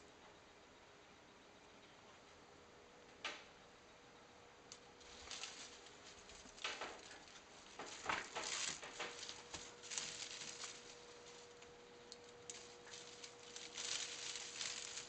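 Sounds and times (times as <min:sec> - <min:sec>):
kitten rustling and scratching: 0:05.0 - 0:15.0.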